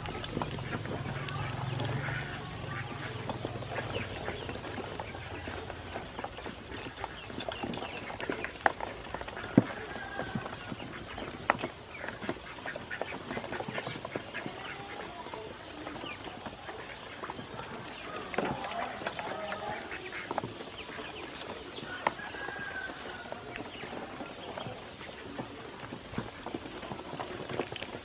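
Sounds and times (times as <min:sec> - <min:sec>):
ducklings peeping: 0:00.0 - 0:28.0.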